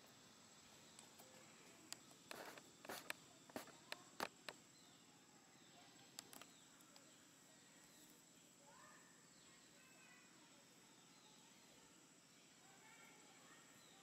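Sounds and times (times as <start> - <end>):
faint sharp clicks and crackles: 0.0 - 4.7, 6.0 - 7.2.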